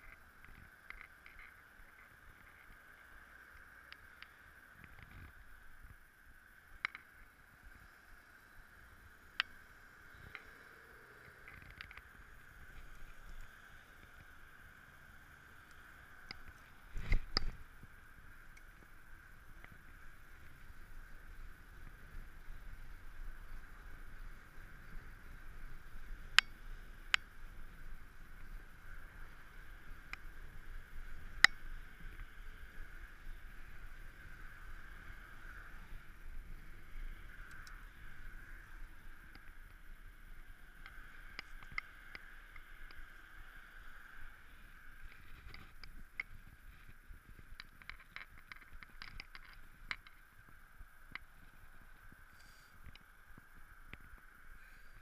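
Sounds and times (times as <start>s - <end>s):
bike tyre noise on pavement: 0.0s - 55.0s
small clicks and taps: 45.1s - 50.2s.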